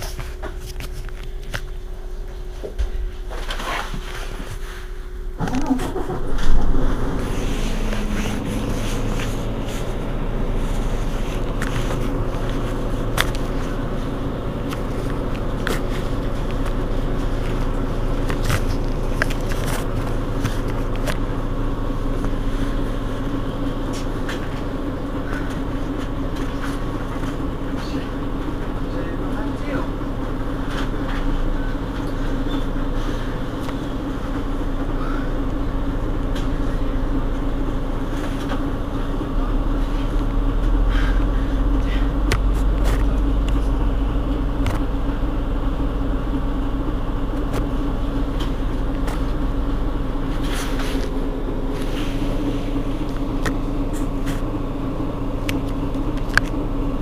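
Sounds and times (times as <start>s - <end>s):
bus diesel engine starting and idling: 0.0s - 57.0s.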